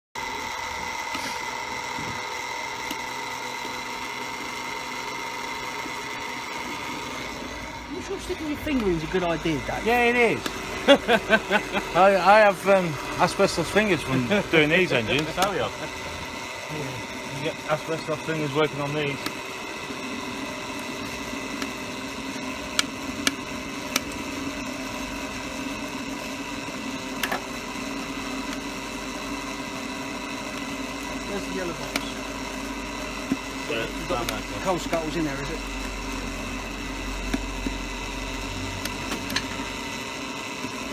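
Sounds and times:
small electric fan whining: 0.2 - 40.9.

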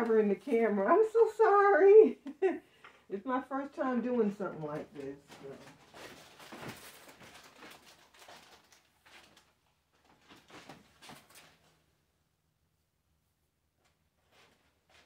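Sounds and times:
objects being moved about: 4.5 - 11.7.

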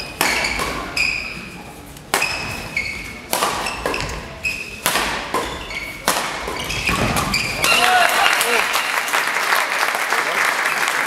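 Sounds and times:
racket smacking shuttlecock: 0.0 - 1.3, 1.9 - 7.8
shoes squeaking on court: 0.0 - 7.7.

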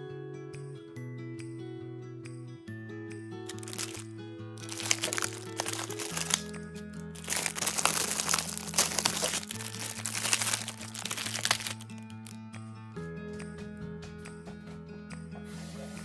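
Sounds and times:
background music: 0.0 - 16.0
plastic packaging crinkling: 3.5 - 12.4.

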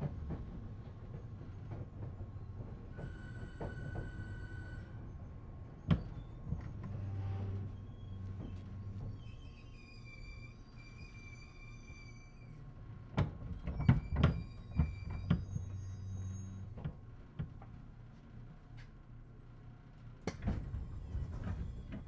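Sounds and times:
train car humming: 0.0 - 22.0
clunks and thumps: 5.8 - 7.1, 8.2 - 9.3, 20.3 - 22.0.

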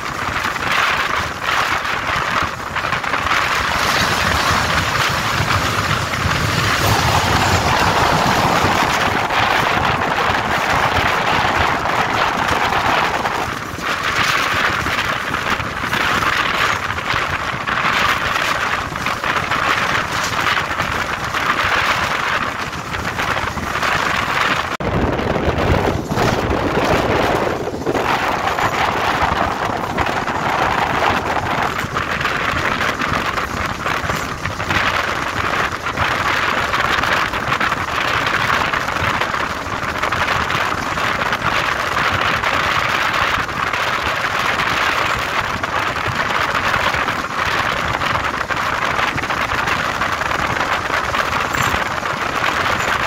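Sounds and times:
deep train rumble: 0.0 - 53.0
train wheels rushing on rails: 0.0 - 53.0
wind past microphone: 0.0 - 53.0.

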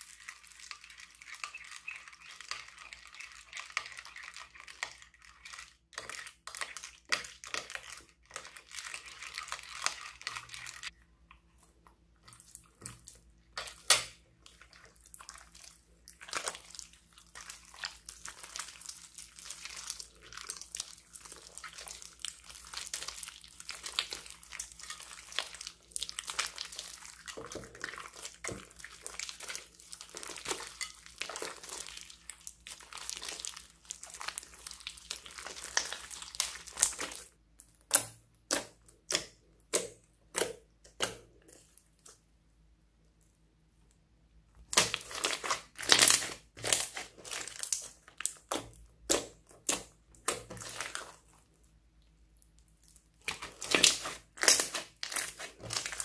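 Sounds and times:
crunchy slime crackling and popping: 13.7 - 42.1, 44.6 - 51.6, 52.4 - 56.0.

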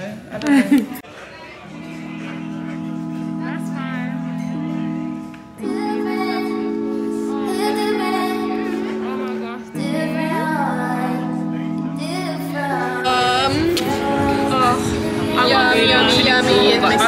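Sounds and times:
woman singing over held chords: 4.0 - 17.0.

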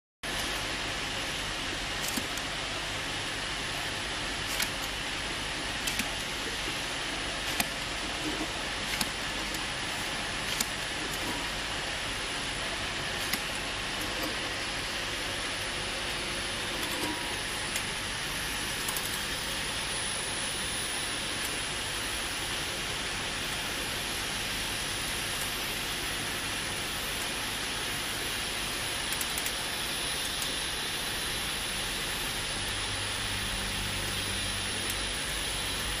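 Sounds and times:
machine hum and hiss: 0.2 - 36.0
sharp machine clicks: 2.0 - 2.5, 4.4 - 5.0, 5.8 - 6.5, 7.3 - 11.4, 13.1 - 14.4, 18.8 - 19.4, 29.0 - 30.6.

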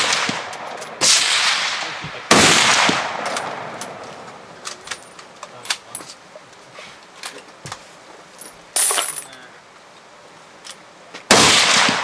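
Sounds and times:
rifle shot echoing: 0.0 - 4.0, 11.3 - 12.0.

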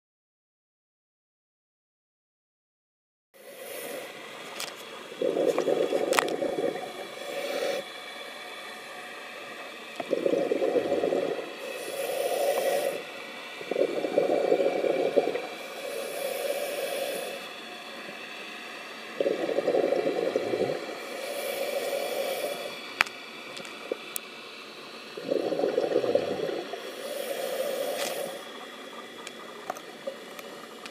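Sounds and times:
regulator hissing: 3.4 - 30.9
exhaled bubbles burbling: 5.1 - 7.8, 9.9 - 17.4, 19.1 - 22.8, 25.1 - 30.9.

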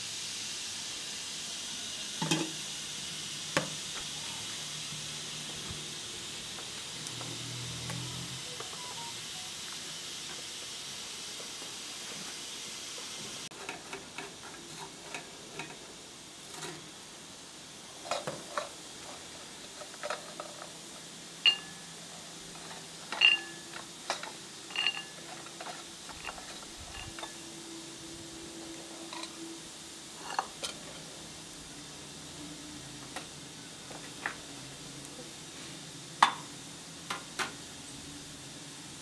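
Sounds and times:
steady hiss: 0.0 - 39.0
metal spoon scraping in a pan: 16.4 - 16.9, 22.6 - 27.4, 30.2 - 31.1
china clinking: 21.5 - 21.8, 23.1 - 23.7, 24.7 - 25.2.

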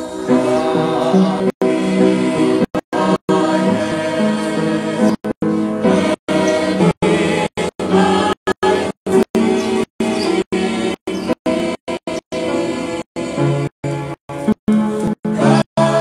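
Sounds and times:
choir singing a hymn: 0.0 - 11.8, 12.4 - 13.6, 15.3 - 16.0.

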